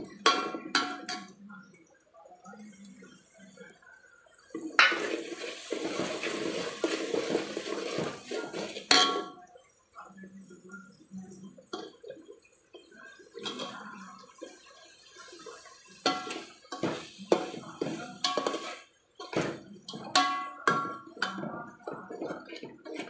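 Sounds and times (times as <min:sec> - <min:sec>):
metal spoon scraping a pot: 0:04.8 - 0:09.3, 0:16.0 - 0:23.0.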